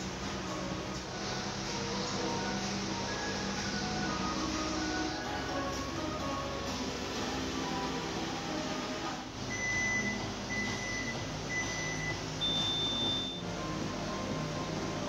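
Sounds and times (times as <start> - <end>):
background music: 0.0 - 15.0
electronic timer beeps: 9.5 - 13.4.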